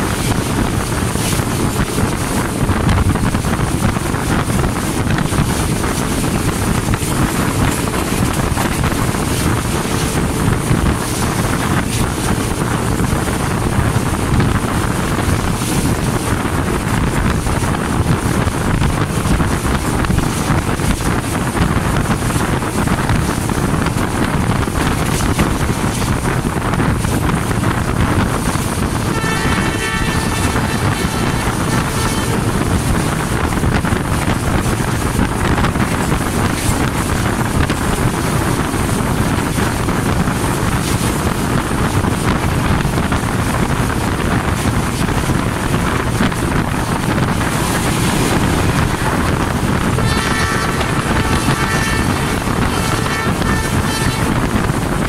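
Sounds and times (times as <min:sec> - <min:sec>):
locomotive running: 0:00.0 - 0:55.0
wind on microphone: 0:00.0 - 0:55.0
multi-pitch horn tone: 0:29.0 - 0:33.0, 0:49.9 - 0:54.8.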